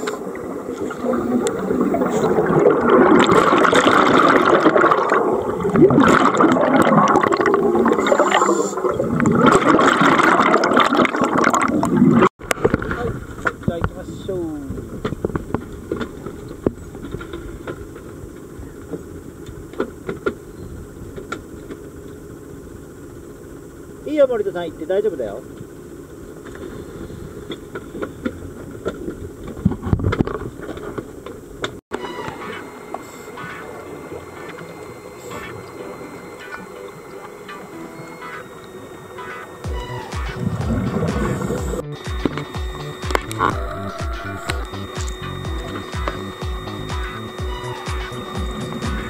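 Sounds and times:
air bubbles gurgling underwater: 0.0 - 12.8, 40.4 - 41.8
boat engine idling: 31.1 - 49.0.

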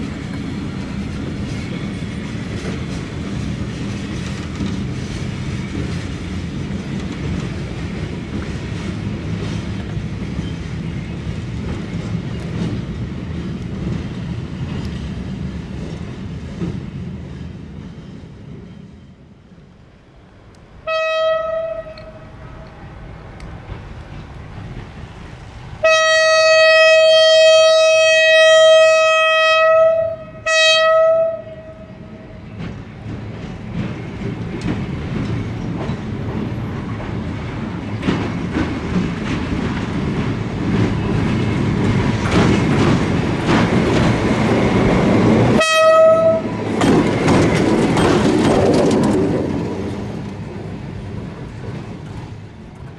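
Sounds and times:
locomotive rumble and rail clatter: 0.0 - 52.9
locomotive horn blasts: 20.8 - 22.4, 25.8 - 32.1, 45.6 - 46.6.

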